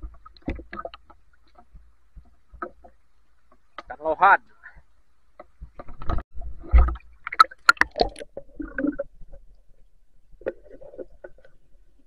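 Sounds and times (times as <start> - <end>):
water splashing and sloshing: 0.0 - 12.0
muffled underwater clicks: 5.3 - 9.5.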